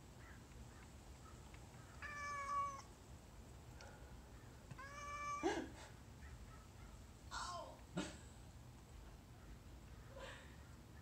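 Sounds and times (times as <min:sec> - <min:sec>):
cat meowing: 0:02.0 - 0:02.9, 0:04.8 - 0:05.5.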